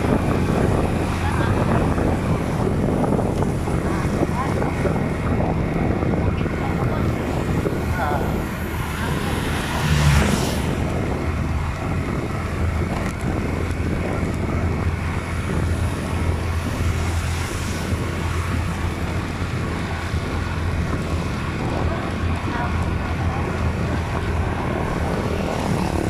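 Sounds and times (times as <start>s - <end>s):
road noise: 0.0s - 26.0s
vehicle engine drone: 0.0s - 26.0s
car passing whoosh: 6.0s - 22.0s.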